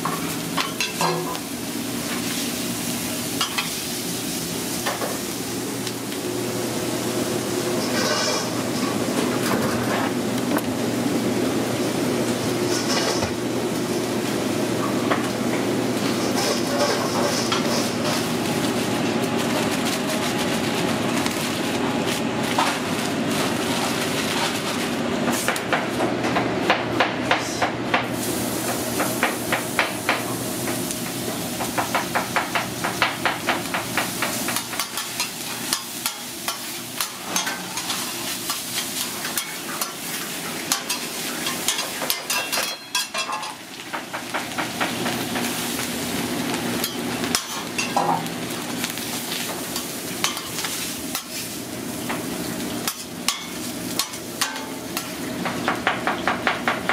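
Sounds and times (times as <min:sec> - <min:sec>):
food sizzling: 0:00.0 - 0:25.9, 0:28.1 - 0:56.9
metal spatulas chopping on griddle: 0:31.6 - 0:40.0, 0:49.8 - 0:51.4, 0:52.8 - 0:56.9.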